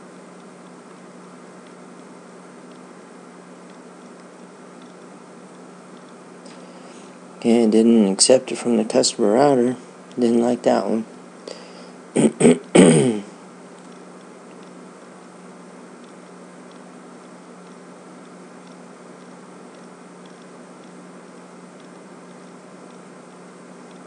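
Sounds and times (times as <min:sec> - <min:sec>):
low hum and hiss: 0:00.0 - 0:24.0
faint regular ticking: 0:00.2 - 0:08.1, 0:13.5 - 0:24.0.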